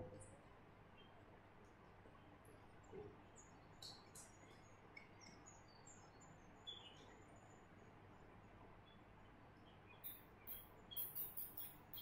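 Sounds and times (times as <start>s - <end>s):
small birds chirping: 3.3s - 7.6s, 8.8s - 12.0s.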